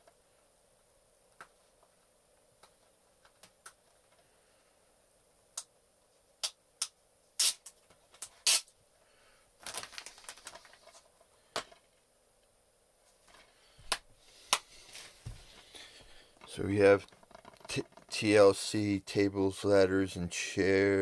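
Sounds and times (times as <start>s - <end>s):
rustling: 9.6s - 12.0s
plastic cases clicking and knocking: 16.4s - 18.2s.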